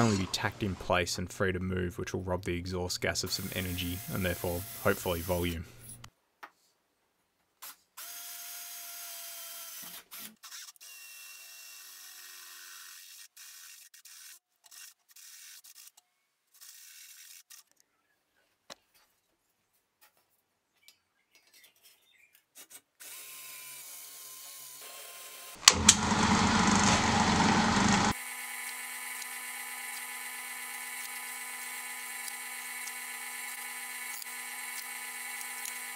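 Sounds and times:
handheld drill boring steel: 0:03.4 - 0:06.0, 0:23.0 - 0:35.9
drill press humming: 0:25.6 - 0:35.9
loud harsh drilling burst: 0:25.6 - 0:35.9.

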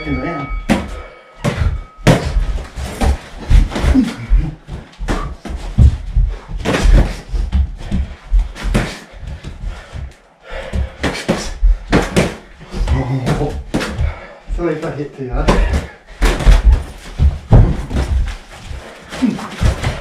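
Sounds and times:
boxing gloves smacking: 0:11.0 - 0:12.5, 0:15.5 - 0:18.5.

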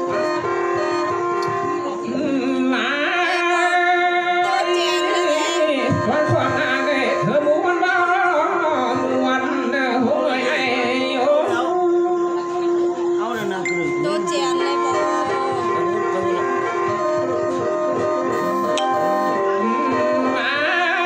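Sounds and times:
instrumental backing with drone: 0:00.0 - 0:09.4, 0:13.6 - 0:21.0
person singing ornamented melody: 0:18.7 - 0:21.0.

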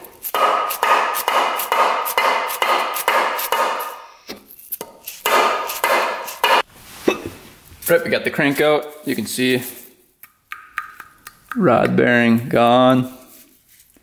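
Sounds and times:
ringing metallic hammer strikes: 0:00.4 - 0:04.2.

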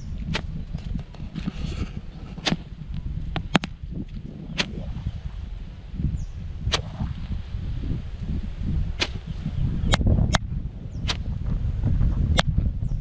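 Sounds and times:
steady low rumble: 0:00.0 - 0:13.0
sharp cracks: 0:00.3 - 0:00.6, 0:02.4 - 0:02.8, 0:04.5 - 0:05.0, 0:09.0 - 0:09.3.

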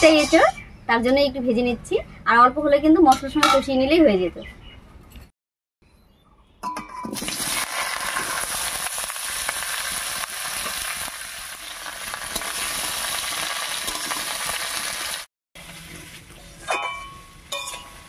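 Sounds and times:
food sizzling in hot oil: 0:07.1 - 0:16.0.

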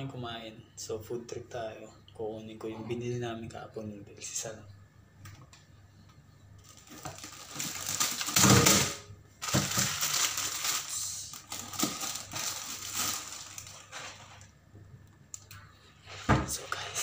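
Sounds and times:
plastic packaging crinkling: 0:06.6 - 0:14.6.

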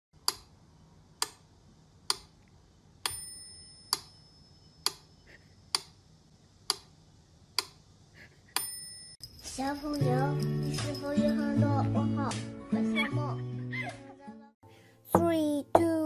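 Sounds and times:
bell-like ding: 0:03.1 - 0:04.8, 0:08.6 - 0:11.6.

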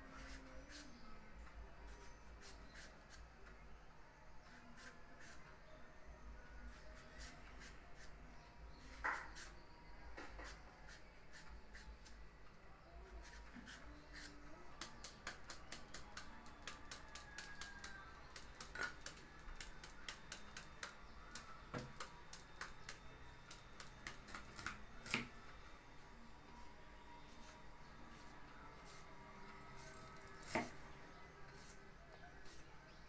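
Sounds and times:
knife chopping vegetables: 0:13.6 - 0:25.3.

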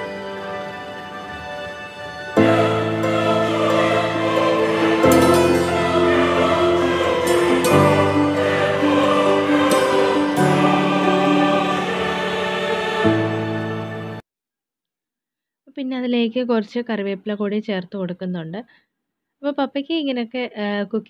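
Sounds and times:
choir-like singing over chords: 0:00.0 - 0:14.2.

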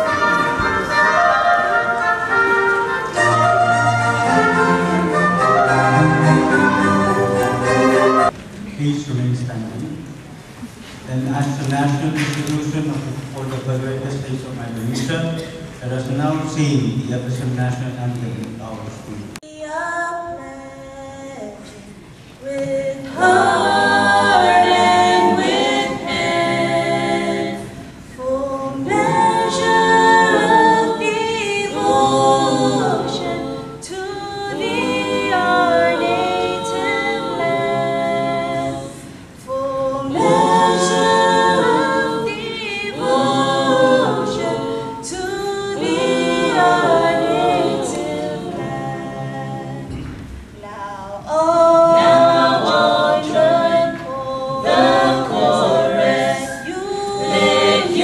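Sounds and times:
group singing unaccompanied: 0:00.0 - 0:08.4, 0:22.4 - 0:50.4, 0:51.1 - 0:58.0.

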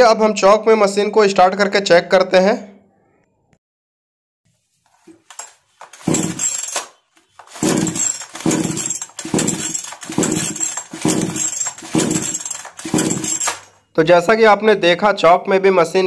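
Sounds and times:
chainsaw engine cranking: 0:05.3 - 0:13.9.

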